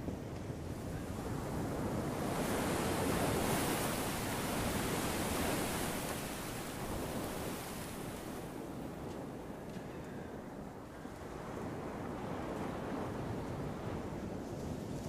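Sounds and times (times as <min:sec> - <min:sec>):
surf washing over rocks: 0:01.1 - 0:09.1.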